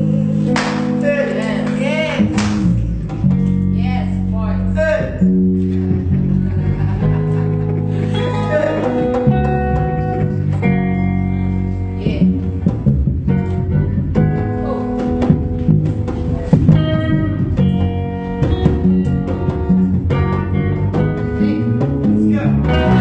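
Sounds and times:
bass guitar line: 0.0 - 23.0
live band playing: 5.0 - 23.0.

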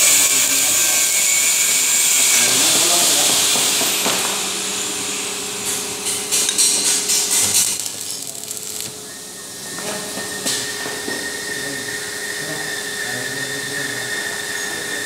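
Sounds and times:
welding arc crackling and sizzling: 0.0 - 11.3.

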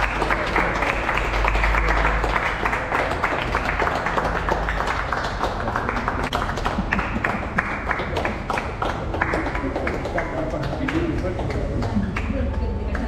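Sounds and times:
people clapping: 0.0 - 13.0.

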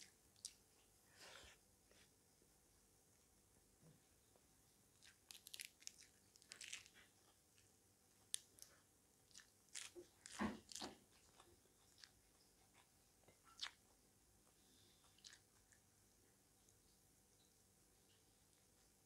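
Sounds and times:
lettuce crunching being chewed: 0.0 - 0.6, 4.9 - 15.8.

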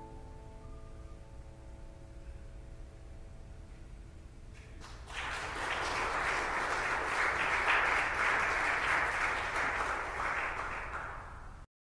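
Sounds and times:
audience applauding: 4.8 - 11.6.

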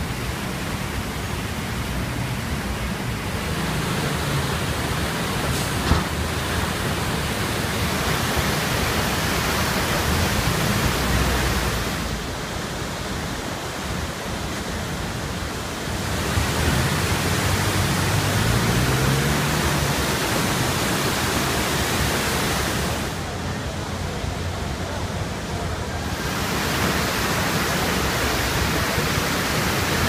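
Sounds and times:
flooded river rushing: 0.0 - 30.0.

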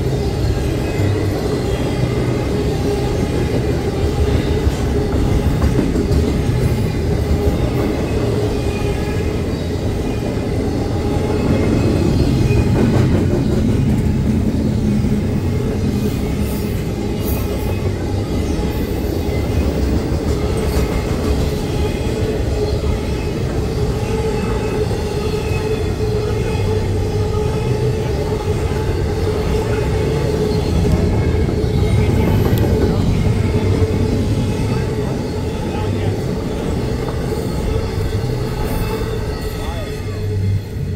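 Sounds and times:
steel wheels rumbling on rail: 0.0 - 40.9.

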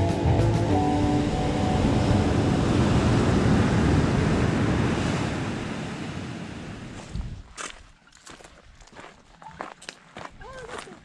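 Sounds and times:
ocean surf breaking on beach: 0.6 - 7.0.

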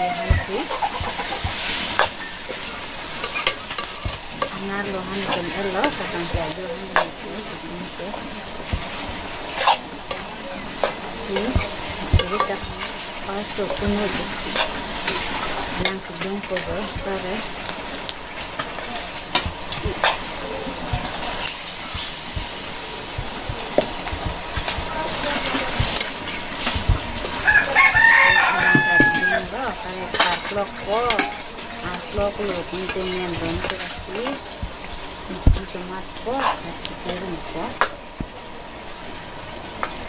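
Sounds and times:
rooster crowing: 0.0 - 1.2, 27.3 - 29.8
chicken clucks: 0.0 - 1.8
metal spatula scraping a wok: 0.0 - 7.2, 8.2 - 34.5
food sizzling: 0.0 - 40.0.

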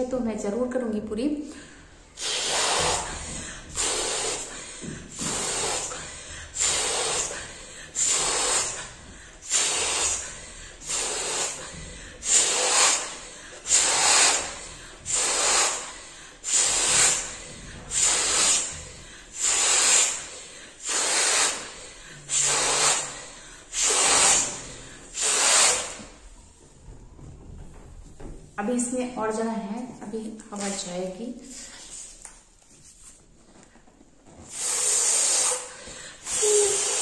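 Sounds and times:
quick inhaled breaths: 1.5 - 26.4, 34.4 - 37.0
breaths blown into balloon: 1.6 - 26.6, 34.4 - 37.0.

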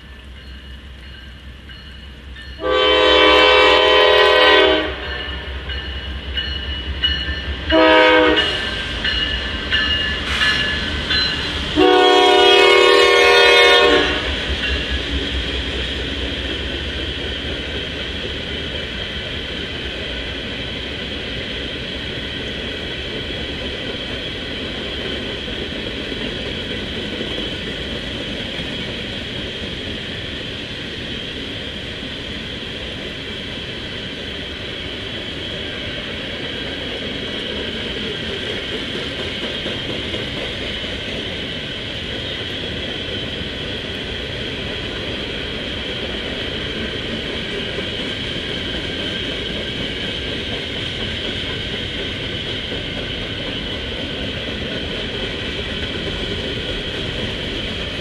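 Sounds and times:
train cars rumbling and clattering: 0.0 - 58.0
locomotive horn blasts: 2.6 - 5.6, 7.7 - 8.7, 11.8 - 14.3.

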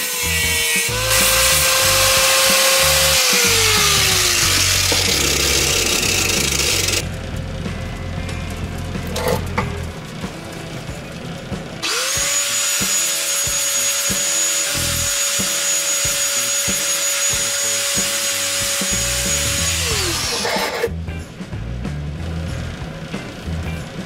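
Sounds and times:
grinder grating on steel: 0.0 - 7.0, 11.8 - 20.9
angle grinder whine: 0.0 - 20.9.

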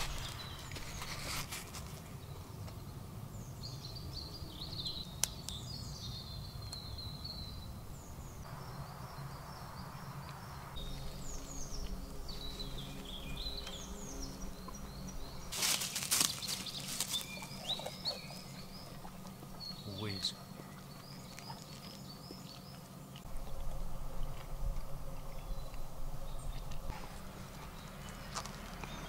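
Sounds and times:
rustling and crackling: 0.0 - 2.8, 10.8 - 28.9
birds chirping and singing: 0.0 - 29.0
low background noise: 0.0 - 29.0.

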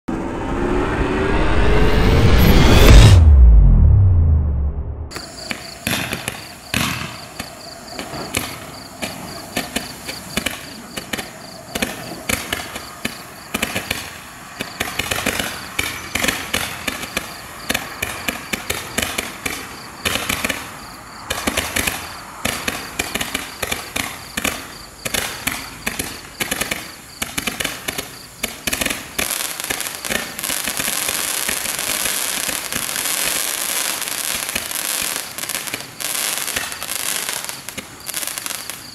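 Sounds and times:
roman candle firing shots: 5.1 - 20.7.

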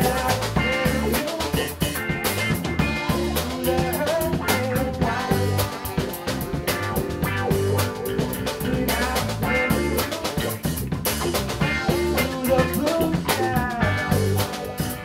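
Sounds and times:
drum kit beat: 0.0 - 15.0
electric bass: 0.0 - 15.0
electric guitar: 0.0 - 15.0.

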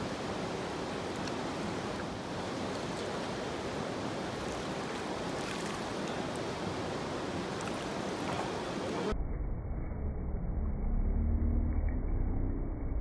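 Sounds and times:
creek rushing over rocks: 0.0 - 9.1.

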